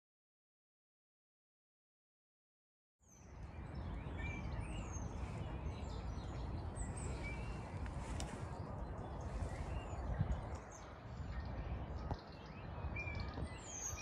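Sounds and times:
small birds chirping: 3.0s - 14.0s.

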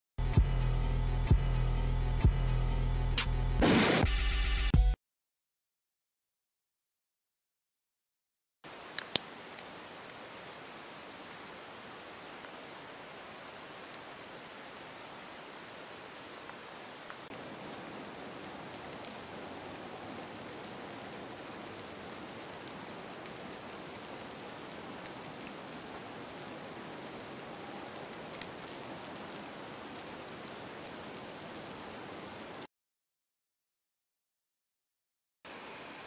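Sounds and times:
rain falling: 8.6s - 32.7s, 35.5s - 36.0s
faint clicks: 8.9s - 10.2s.

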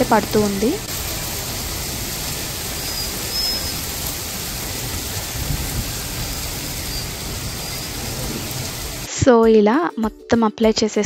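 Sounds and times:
hail and rain on pavement: 0.0s - 9.1s.

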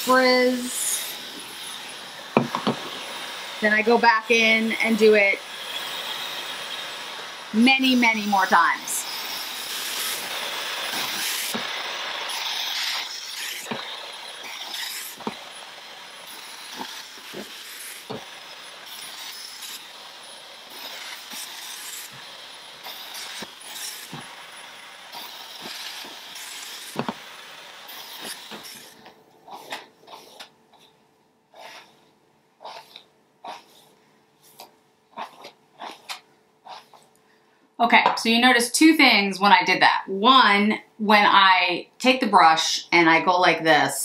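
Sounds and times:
hair dryer blowing: 0.0s - 30.5s.

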